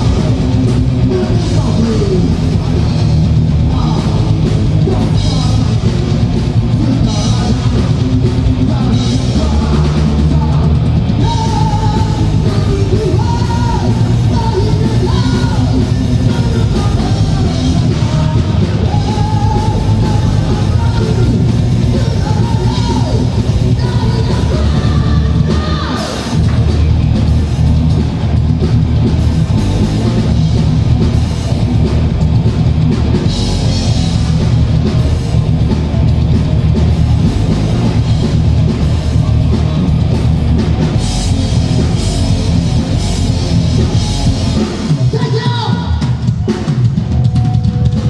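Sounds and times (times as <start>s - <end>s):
bass guitar: 0.0s - 48.0s
distorted electric guitars: 0.0s - 48.0s
drum kit: 0.0s - 48.0s
person singing: 8.5s - 26.4s.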